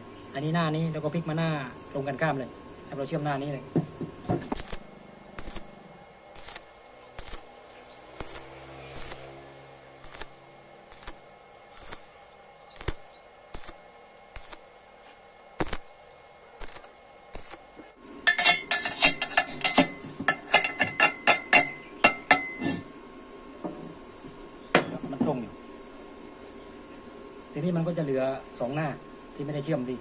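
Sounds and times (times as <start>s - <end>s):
welding arc crackle with pops: 3.9s - 22.8s.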